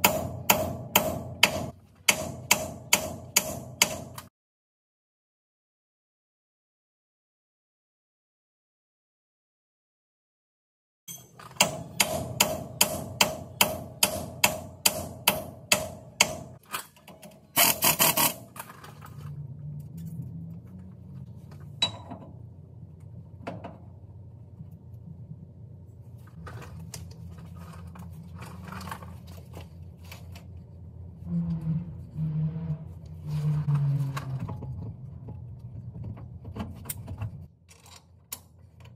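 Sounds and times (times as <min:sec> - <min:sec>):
impact wrench hammering: 0:00.0 - 0:04.3, 0:11.1 - 0:16.6
low steady hum: 0:18.6 - 0:38.9.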